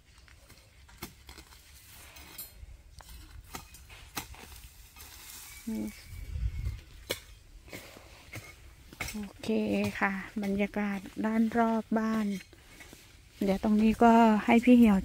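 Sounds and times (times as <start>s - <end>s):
hoe scraping soil: 0.4s - 15.0s
person speaking: 13.4s - 15.0s.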